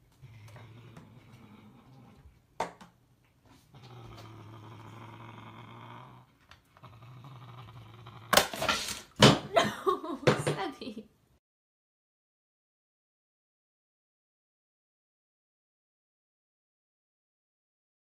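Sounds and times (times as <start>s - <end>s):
cat growling low: 0.0s - 2.4s, 3.6s - 8.5s.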